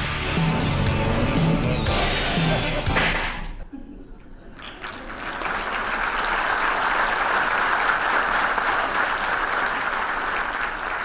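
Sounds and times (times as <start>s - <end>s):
large audience applauding: 4.5s - 11.0s.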